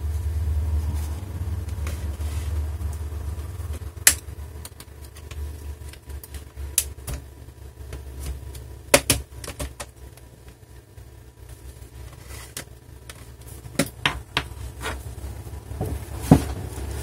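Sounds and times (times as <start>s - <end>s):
plastic clips snapping: 4.0s - 7.3s.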